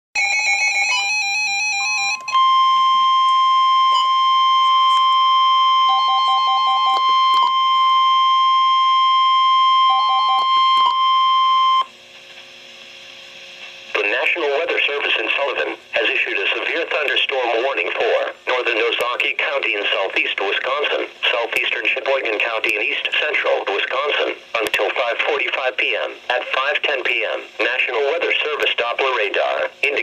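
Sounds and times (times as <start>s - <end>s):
piercing warning alarm tone: 0.2s - 11.9s.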